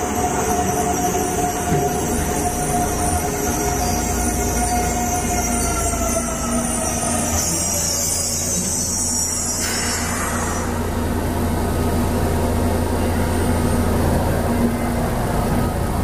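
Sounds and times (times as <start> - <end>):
low hum of standing train: 0.0 - 16.0
train whine: 0.0 - 16.0
train brake hiss: 6.6 - 11.0.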